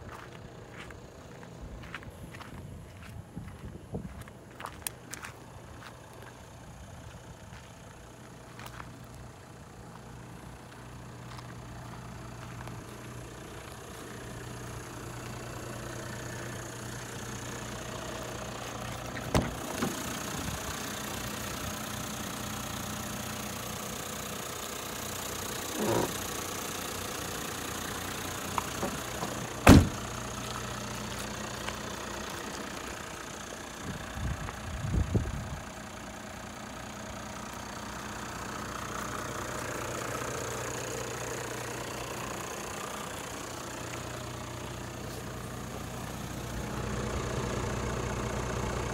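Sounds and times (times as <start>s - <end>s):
diesel engine idling: 0.0s - 48.9s.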